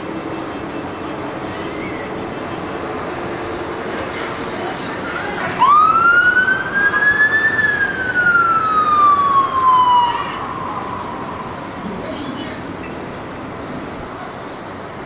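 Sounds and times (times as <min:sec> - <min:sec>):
street traffic noise: 0:00.0 - 0:15.0
siren wailing: 0:05.5 - 0:12.8.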